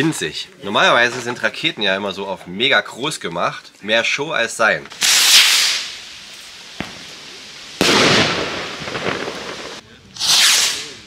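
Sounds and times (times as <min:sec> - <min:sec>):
firework burst crackling: 0:04.9 - 0:11.0
firework rocket hissing: 0:04.9 - 0:11.0.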